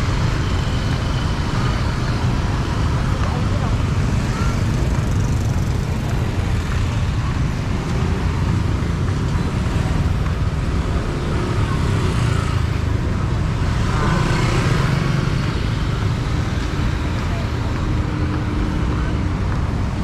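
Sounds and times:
cars and motorbikes passing: 0.0s - 20.0s.

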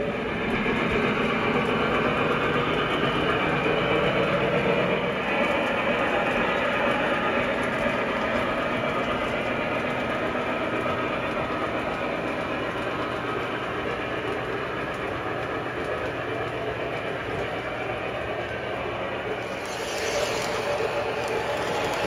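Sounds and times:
model train wheels on rails: 0.0s - 22.0s
motor hum: 19.2s - 22.0s.

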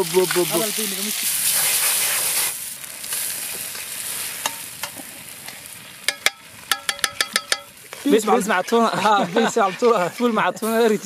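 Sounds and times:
food sizzling in a frying pan: 0.0s - 11.0s
metal spoon clinking against pan: 6.1s - 7.8s.

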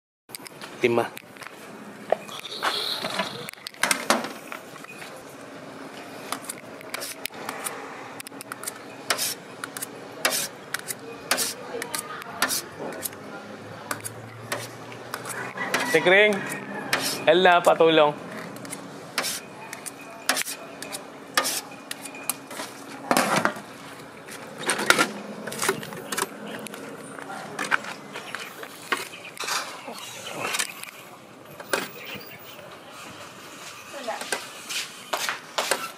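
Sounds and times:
metal ladle scraping in bucket: 15.6s - 17.3s.

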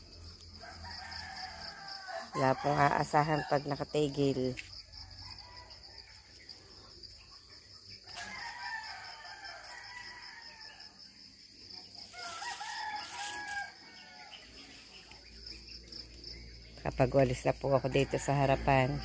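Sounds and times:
rooster crowing: 0.5s - 3.9s, 5.0s - 6.4s, 8.0s - 11.0s, 12.0s - 14.8s, 17.7s - 19.0s.

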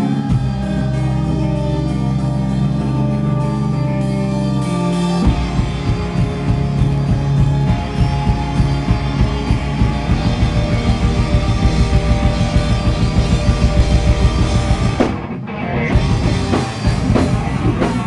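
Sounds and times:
electric guitar chords ringing: 0.0s - 18.0s
rock band playing: 0.0s - 18.0s
drums fast beat: 5.2s - 18.0s.

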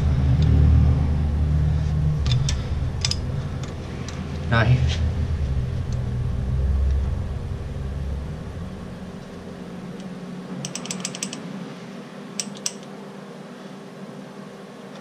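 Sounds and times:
low rumble: 0.0s - 10.6s
ratchet wrench clicking: 10.6s - 11.4s.

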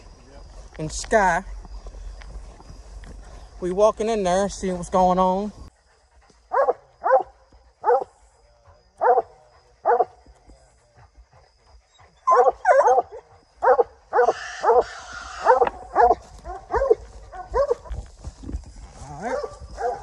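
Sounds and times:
rustle of brush and leaves: 0.0s - 6.6s, 14.2s - 20.0s
hounds barking: 6.0s - 17.9s, 19.2s - 20.0s.

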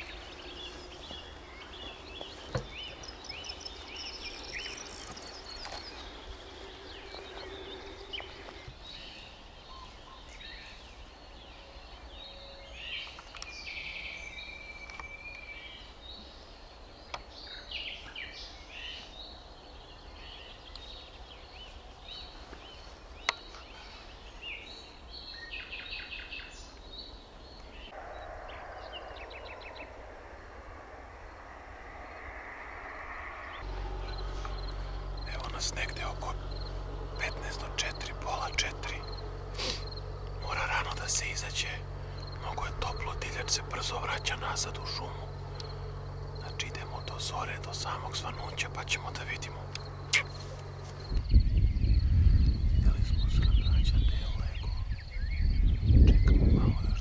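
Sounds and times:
birds chirping and trilling: 0.0s - 57.0s
steady chirring: 27.9s - 52.3s.

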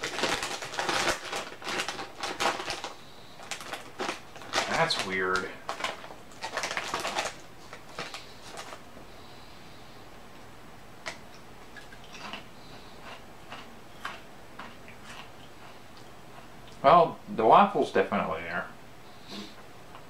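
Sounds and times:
potato chips crunching: 0.0s - 8.8s, 11.8s - 16.8s.

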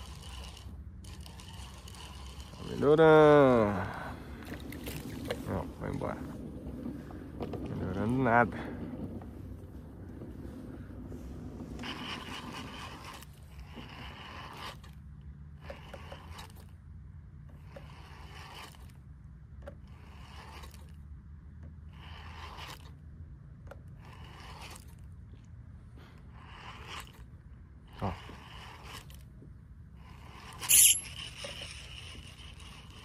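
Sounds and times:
fishing reel whirring: 0.0s - 6.2s, 11.7s - 16.8s, 17.5s - 19.0s, 19.6s - 21.0s, 21.9s - 23.0s, 23.9s - 25.1s, 26.2s - 29.3s, 29.9s - 33.0s.

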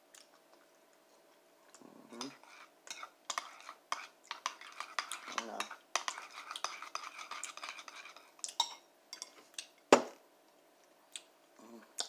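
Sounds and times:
spoon scraping and clinking bowl: 2.2s - 9.4s.

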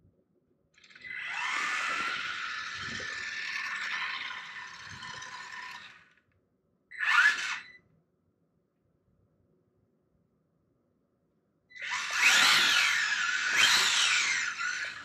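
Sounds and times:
toy car electric motor whining: 0.8s - 6.2s, 6.9s - 7.8s, 11.7s - 15.0s.

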